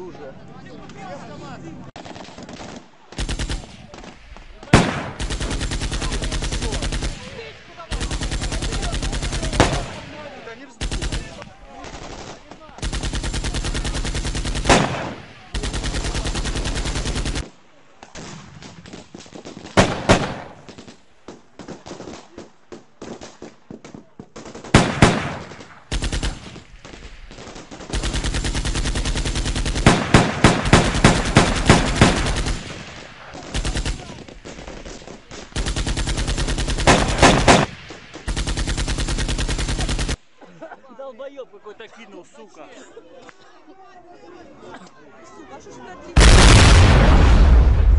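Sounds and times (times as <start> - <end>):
loud close gunshot cracks: 2.0 - 10.2, 46.2 - 47.9
automatic gunfire bursts: 2.0 - 17.5, 18.9 - 21.0, 24.4 - 40.2
scattered single gunshots: 2.0 - 17.5, 18.1 - 40.2, 46.2 - 47.9.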